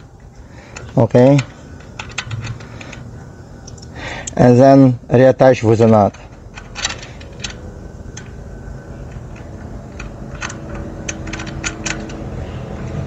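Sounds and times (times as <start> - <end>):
low background hum: 0.0 - 13.0
small metallic clicks: 0.6 - 4.4, 5.8 - 8.4, 9.0 - 12.3.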